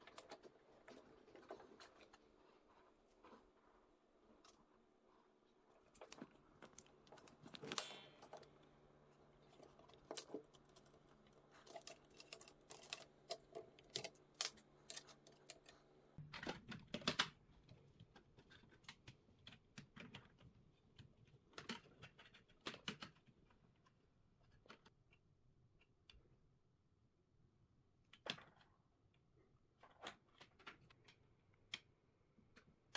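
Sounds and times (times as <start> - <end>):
small plastic parts clicking: 9.5 - 23.6.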